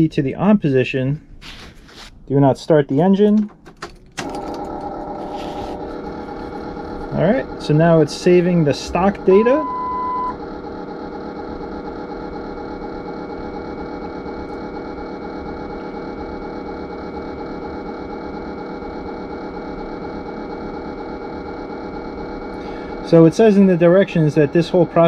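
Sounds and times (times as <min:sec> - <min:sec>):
steady machine hum: 0:00.0 - 0:25.0
faint high whine: 0:05.1 - 0:25.0.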